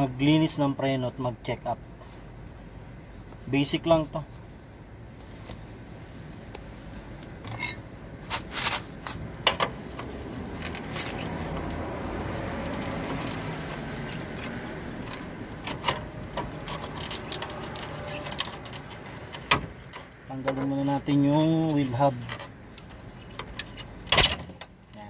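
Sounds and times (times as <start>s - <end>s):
metal tool clicking and scraping: 7.4s - 7.9s.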